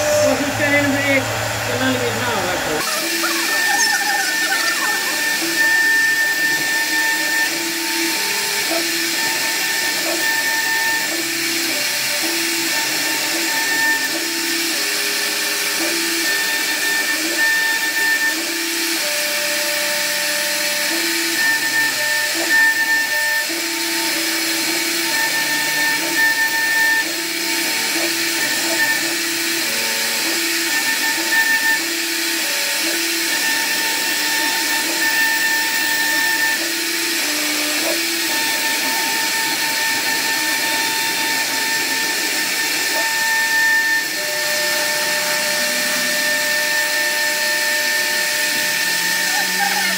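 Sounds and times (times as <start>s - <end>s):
machine motor tones changing pitch: 0.0s - 49.9s
router spindle hissing through wood: 0.0s - 49.9s.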